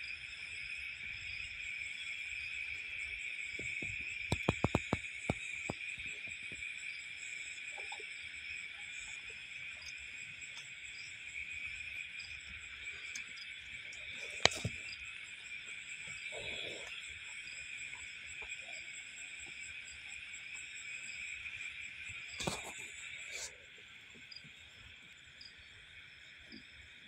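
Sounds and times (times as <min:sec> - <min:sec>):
crickets chirring: 0:00.0 - 0:27.0
sharp clicks: 0:04.2 - 0:05.4.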